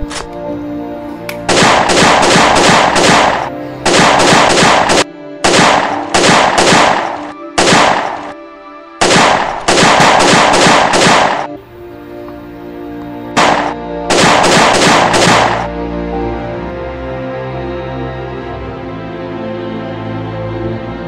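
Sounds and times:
background music: 0.0s - 21.0s
rapid handgun fire: 1.5s - 8.4s, 9.0s - 11.6s, 13.3s - 15.7s.

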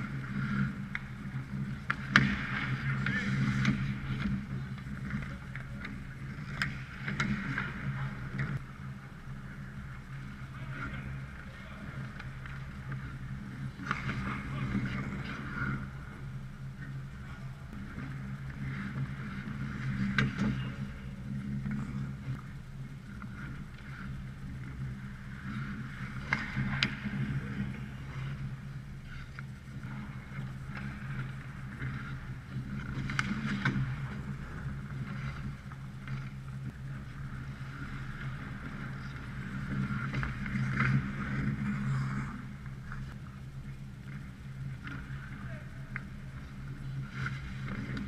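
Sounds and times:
skates scraping on ice: 0.0s - 8.7s, 9.6s - 16.2s, 17.7s - 22.4s, 23.1s - 43.2s, 44.1s - 48.0s
steady low hum: 0.0s - 48.0s
sharp cracks of sticks and pucks: 0.4s - 8.6s, 26.2s - 28.4s.

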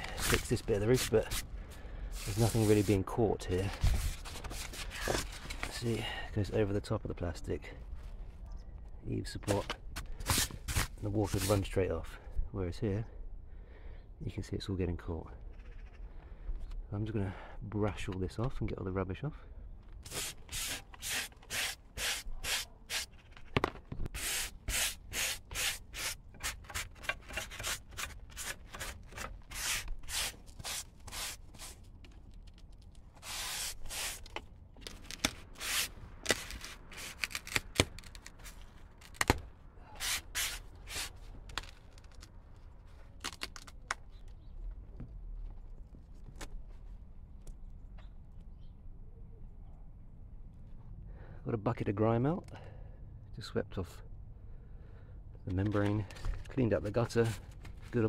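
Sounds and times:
hand brush sweeping roof: 2.1s - 3.1s, 20.1s - 23.1s, 24.2s - 31.8s, 33.2s - 34.3s, 40.0s - 41.1s.

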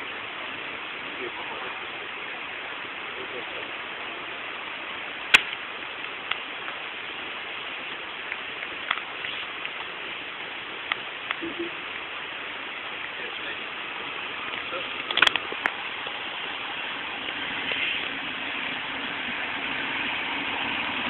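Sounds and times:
outdoor background hiss: 0.0s - 21.0s
sharp clicks: 14.5s - 15.8s.

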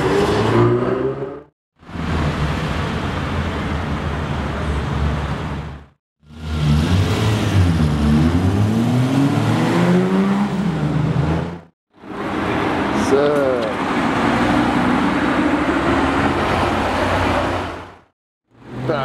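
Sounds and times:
car engine accelerating: 6.2s - 11.7s.

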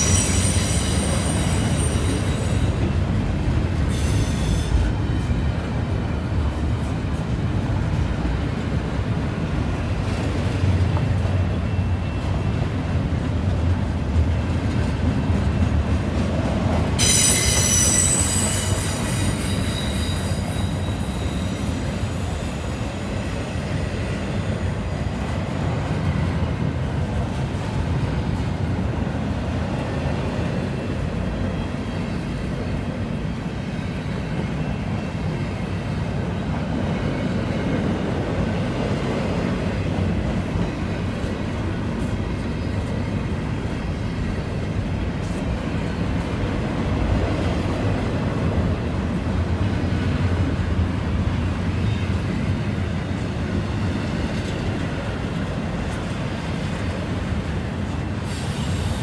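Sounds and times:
high-pitched wheel squeal: 0.0s - 2.7s, 3.9s - 4.8s, 17.0s - 22.6s
steel wheels rumbling on rail: 0.0s - 59.0s.

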